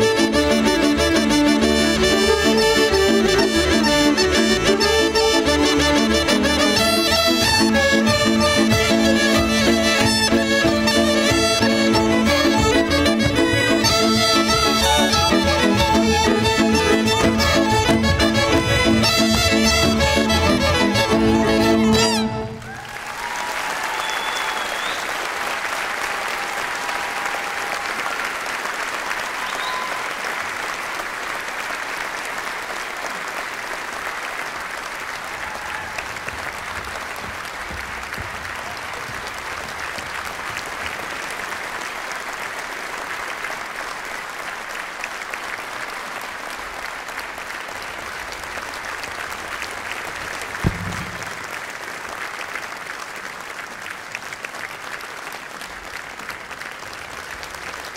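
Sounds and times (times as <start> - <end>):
audience applauding: 0.0 - 57.9
sharp thump: 50.6 - 51.5.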